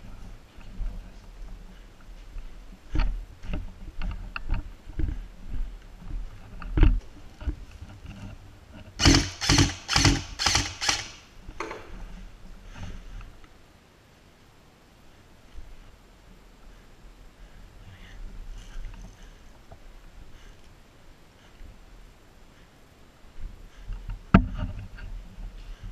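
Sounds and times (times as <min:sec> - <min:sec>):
airsoft gun firing clacks: 0:09.0 - 0:11.3.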